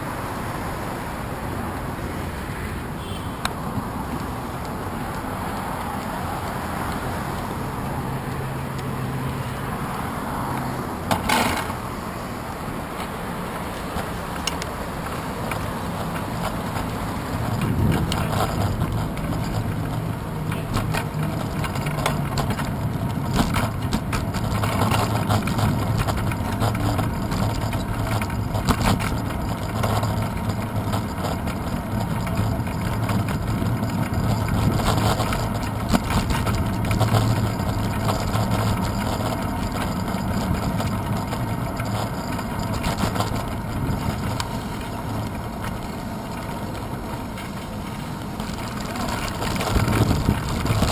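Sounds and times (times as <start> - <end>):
bicycle tyres rumbling on path: 3.0 - 50.9
bicycle knocks and rattles: 10.6 - 12.0, 12.8 - 50.9.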